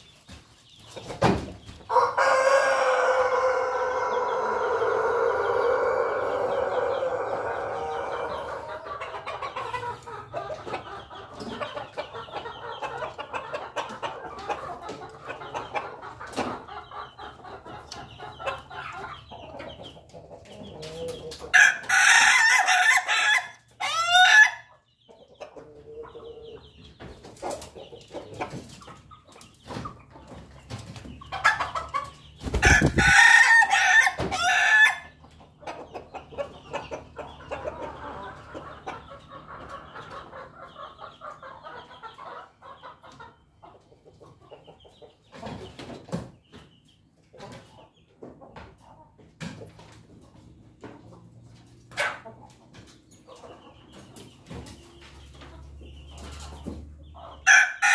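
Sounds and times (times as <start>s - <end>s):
chickens clucking softly: 0.0s - 57.9s
rooster crowing: 1.9s - 8.5s, 32.6s - 35.1s, 57.5s - 57.9s.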